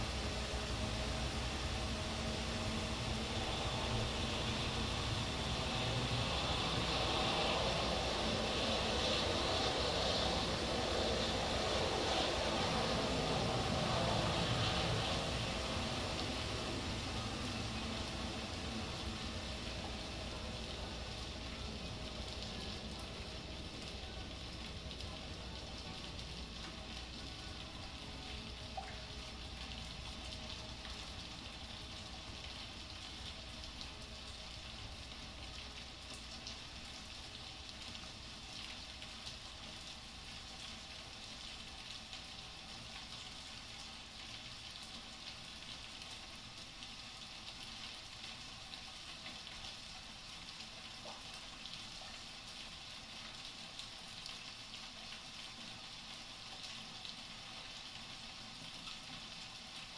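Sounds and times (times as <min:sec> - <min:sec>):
faint low rumble: 0:00.0 - 0:32.4
crackling hiss: 0:00.0 - 0:59.9.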